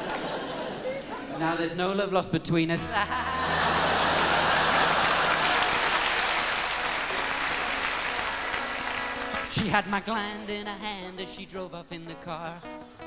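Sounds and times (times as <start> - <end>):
audience applauding: 3.1 - 10.2.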